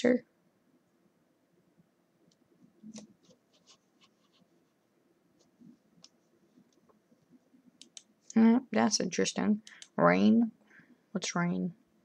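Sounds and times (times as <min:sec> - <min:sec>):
computer mouse clicks: 0:07.8 - 0:08.4, 0:09.6 - 0:10.0.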